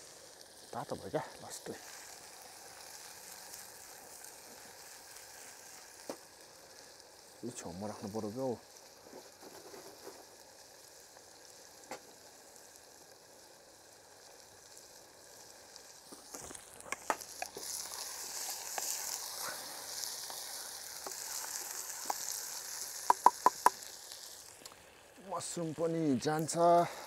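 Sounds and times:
food sizzling in a pan: 0:00.0 - 0:27.0
spoon knocking on pan: 0:23.0 - 0:23.8.

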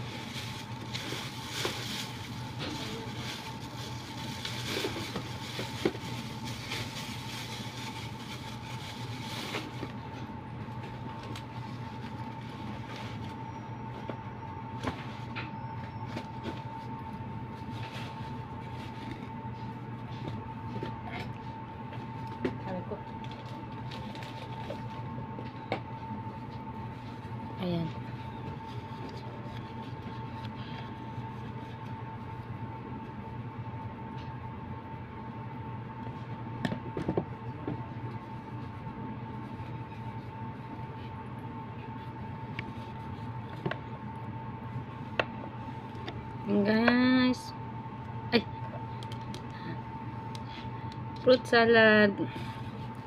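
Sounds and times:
rummaging in a bag: 0:00.0 - 0:10.1
room hum: 0:00.0 - 0:53.0.

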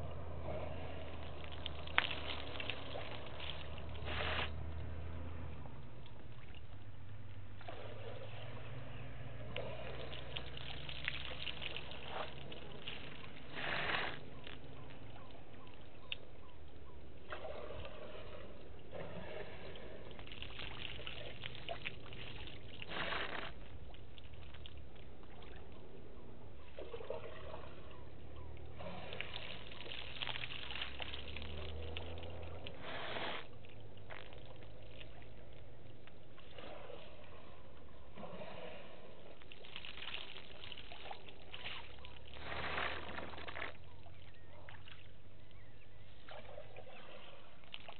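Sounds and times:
water trickling from trunk: 0:00.0 - 0:08.9, 0:09.6 - 0:17.9, 0:19.5 - 0:25.9, 0:28.5 - 0:37.4
water splashing and sloshing: 0:00.0 - 0:47.9.

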